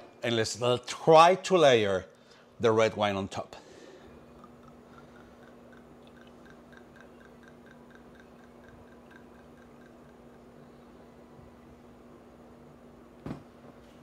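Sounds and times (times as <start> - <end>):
low steady hum: 0.0 - 14.0
wine dripping: 4.2 - 10.8.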